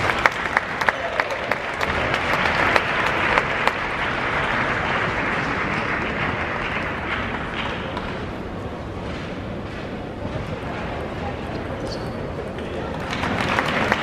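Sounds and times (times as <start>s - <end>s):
crowd applauding: 0.0s - 8.4s, 12.6s - 14.0s.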